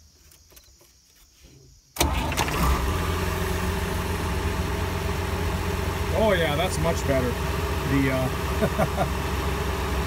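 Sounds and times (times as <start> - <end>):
tractor diesel engine starting: 2.0 - 10.0.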